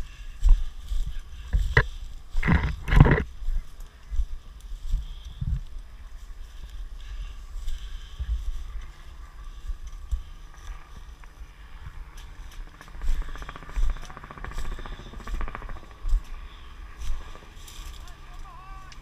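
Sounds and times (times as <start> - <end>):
footsteps through undergrowth: 0.0 - 19.0
camera jostling thumps: 1.5 - 3.3
rapid buzzing rattle: 10.0 - 18.5.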